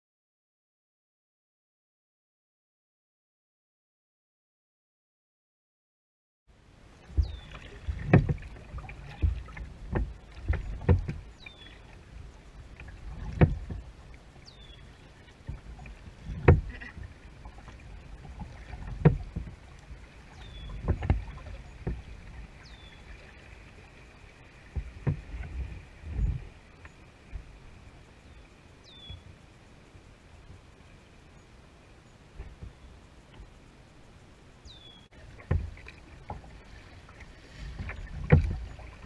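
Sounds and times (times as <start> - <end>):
water washing: 7.0 - 26.6, 35.2 - 39.0
paddle strokes thumping: 7.1 - 14.0, 15.3 - 23.9, 24.6 - 27.5, 35.3 - 39.0.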